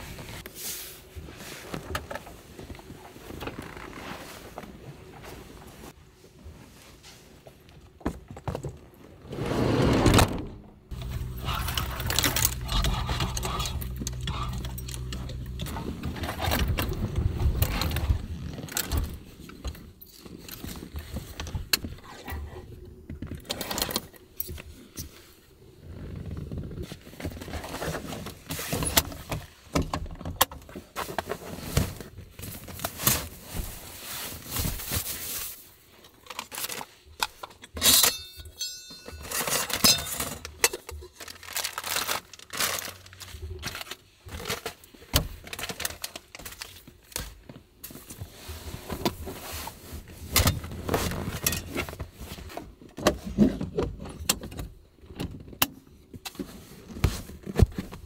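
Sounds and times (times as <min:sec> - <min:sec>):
plastic bags rustling: 0:31.5 - 0:37.2, 0:39.2 - 0:47.1
metal cookware clinking: 0:38.0 - 0:40.3.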